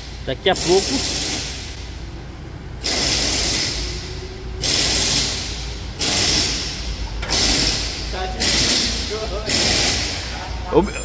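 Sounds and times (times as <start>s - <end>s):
hissing bursts: 0.6s - 1.8s, 2.8s - 10.2s.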